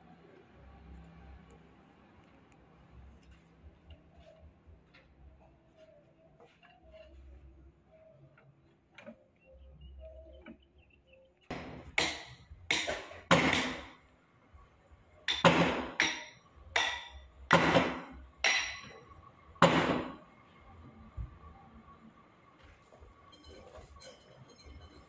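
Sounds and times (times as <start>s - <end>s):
steel chains clanking: 22.8s - 25.0s.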